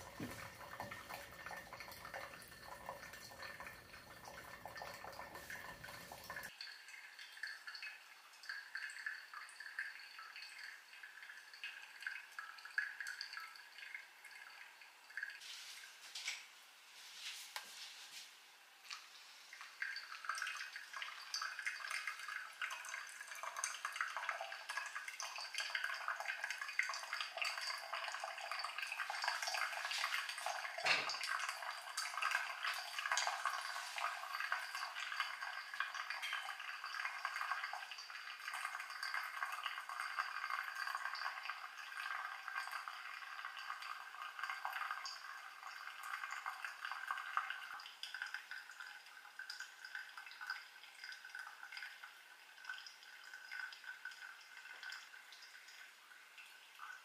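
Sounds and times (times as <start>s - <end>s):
coffee trickling into glass server: 0.0s - 11.3s.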